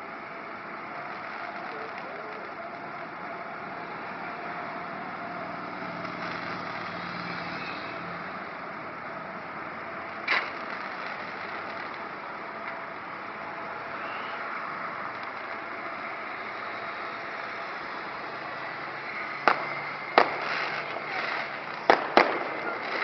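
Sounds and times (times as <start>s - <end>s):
steady background noise: 0.0s - 23.0s
firework bang: 10.2s - 12.1s, 19.4s - 23.0s.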